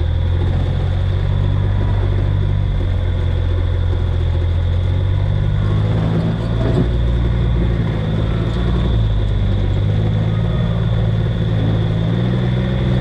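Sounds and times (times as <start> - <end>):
high-pitched whine: 0.0 - 13.0
vehicle engine running slowly: 0.0 - 13.0.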